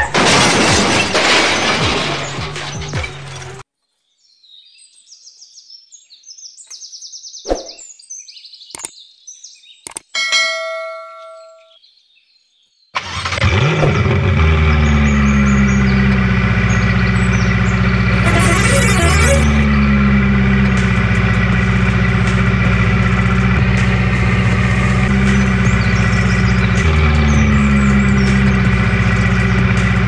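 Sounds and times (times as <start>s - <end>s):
clicks: 9.8s - 10.1s
bell-like ding: 10.2s - 11.8s
truck engine running: 13.4s - 30.0s.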